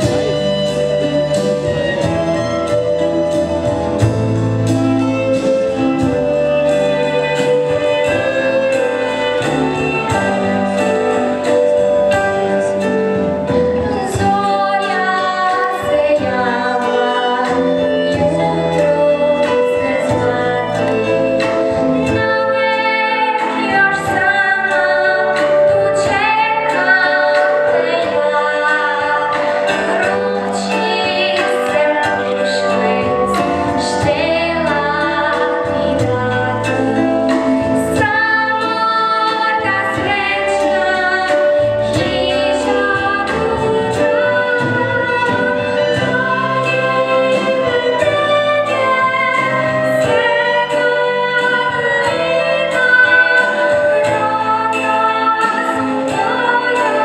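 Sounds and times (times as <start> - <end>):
live band playing: 0.0 - 57.0
girl singing into a microphone: 22.0 - 57.0.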